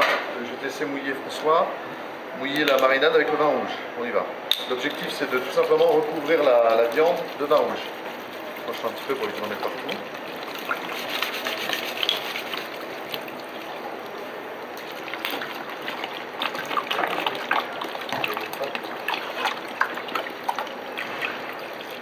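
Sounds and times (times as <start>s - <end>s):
wine pouring into metal pan: 5.1s - 22.0s.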